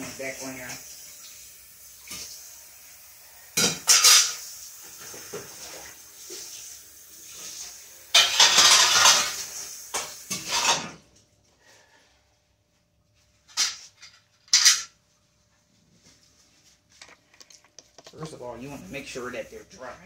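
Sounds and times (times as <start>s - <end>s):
metal pans clattering and scraping: 3.6s - 5.9s, 8.1s - 11.1s, 13.4s - 15.0s.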